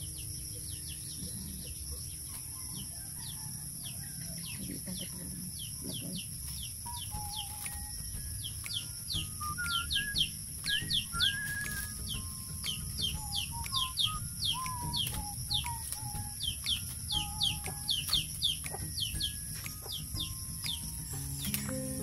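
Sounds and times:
birds chirping: 0.0 - 22.0
low whistled bird notes: 5.6 - 22.0
steady high drone: 6.5 - 22.0.

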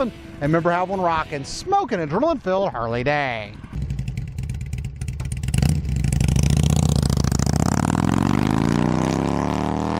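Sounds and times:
motorcycle engine revving: 3.6 - 9.9.

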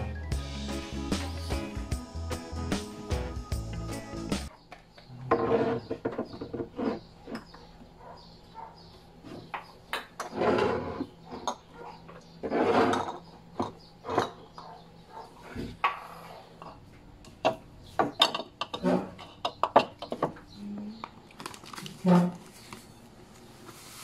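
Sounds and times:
jars scraping on wood: 5.1 - 7.8, 10.1 - 14.5, 18.6 - 19.4
glass jars knocking on shelves: 17.4 - 20.4.

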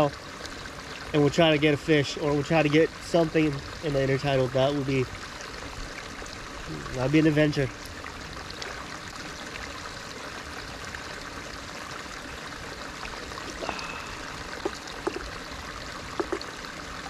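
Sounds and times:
water running and trickling: 0.0 - 17.0
small water splashes: 7.7 - 17.0.

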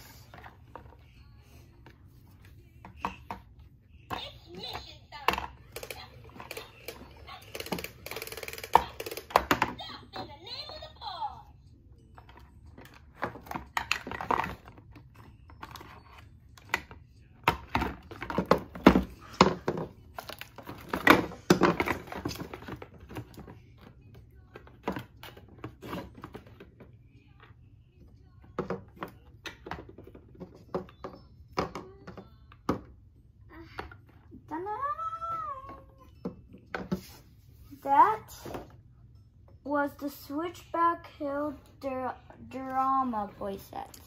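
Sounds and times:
plastic toys tapping on a table: 5.3 - 9.8.

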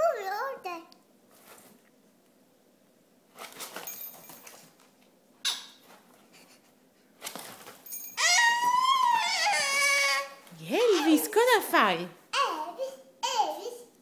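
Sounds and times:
guinea pig squealing: 8.2 - 11.2.

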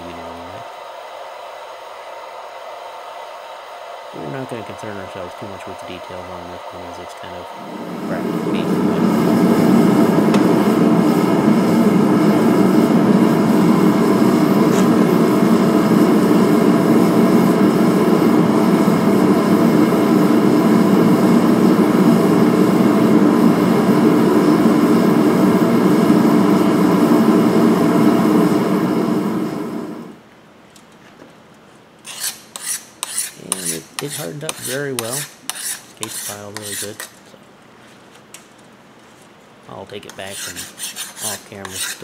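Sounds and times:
forge burner rushing: 0.0 - 30.2, 32.1 - 37.2, 39.7 - 42.0
file scraping across blade: 32.0 - 37.2, 40.0 - 42.0.

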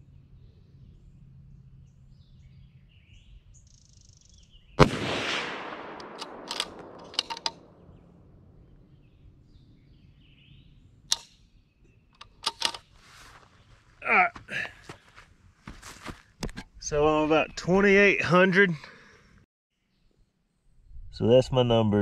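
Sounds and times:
rifle shot with echo: 4.8 - 8.2
rifle bolt clicks: 5.5 - 7.7, 11.1 - 11.4, 12.2 - 12.9.

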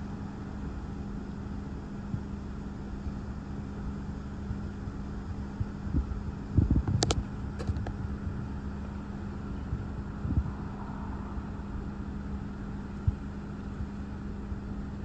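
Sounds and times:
steady low hum: 0.0 - 15.0
wind buffeting microphone: 5.6 - 8.7, 9.4 - 11.9.

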